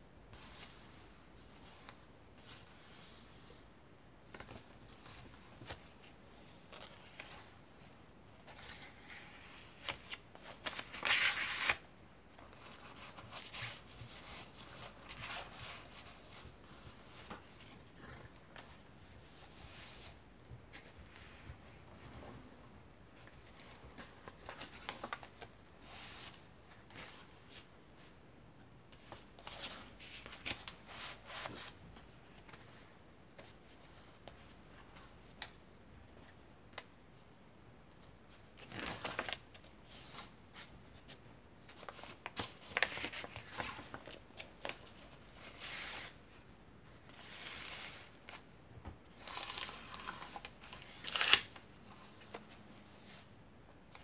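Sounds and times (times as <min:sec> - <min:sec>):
old paper pages rustling: 0:08.4 - 0:11.8, 0:29.0 - 0:35.5, 0:38.5 - 0:46.2, 0:49.1 - 0:53.3.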